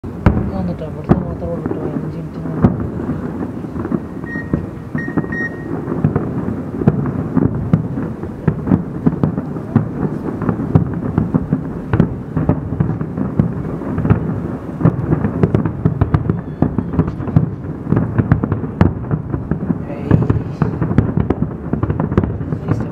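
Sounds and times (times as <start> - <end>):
fireworks bursts rumbling: 0.0 - 22.9
sharp firework cracks: 0.0 - 22.9.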